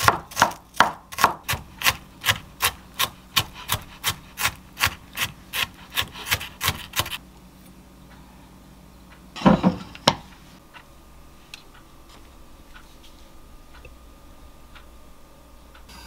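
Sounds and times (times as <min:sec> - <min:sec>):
knife chopping on wooden board: 0:00.0 - 0:07.2
wooden plate knocking on counter: 0:09.4 - 0:10.2.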